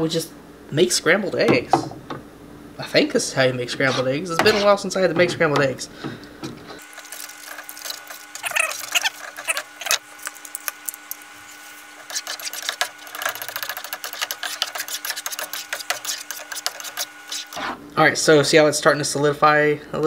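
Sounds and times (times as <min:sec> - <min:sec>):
spatula scraping a frying pan: 0:03.8 - 0:04.8, 0:11.4 - 0:17.7.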